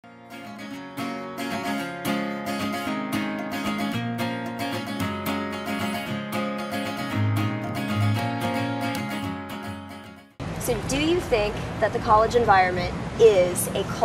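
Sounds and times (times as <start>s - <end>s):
strummed acoustic guitar: 0.0s - 10.4s.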